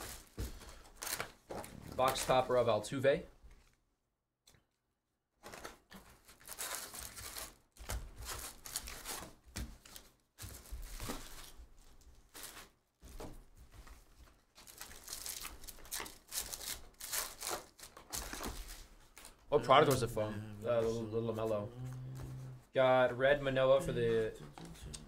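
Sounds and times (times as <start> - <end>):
card wrappers tearing and crinkling: 0.0 - 2.5, 5.4 - 11.5, 14.6 - 20.0.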